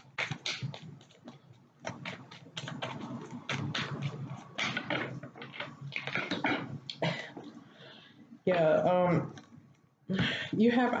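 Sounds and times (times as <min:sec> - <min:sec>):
cards being shuffled: 0:00.0 - 0:06.4.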